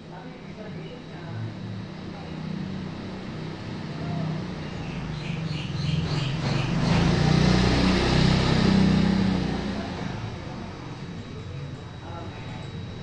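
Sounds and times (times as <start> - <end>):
vehicle passing: 1.6 - 12.2
bird chirping: 4.7 - 7.1.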